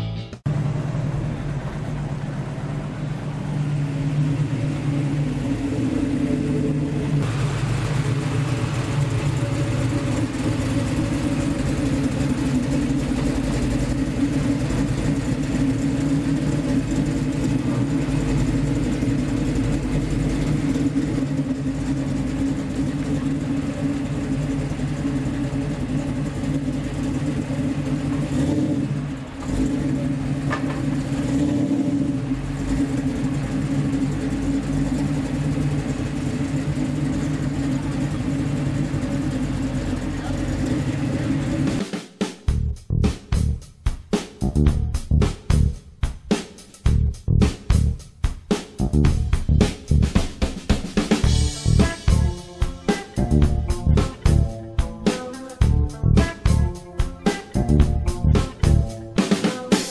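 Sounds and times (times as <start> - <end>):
car engine idling: 0.4 - 41.8, 46.9 - 59.9.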